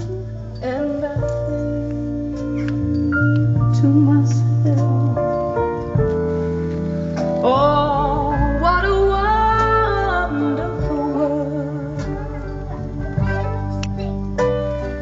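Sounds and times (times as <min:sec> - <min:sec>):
deep bass line: 0:00.0 - 0:15.0
held instrument notes: 0:00.0 - 0:15.0
person singing with vibrato: 0:07.4 - 0:13.7.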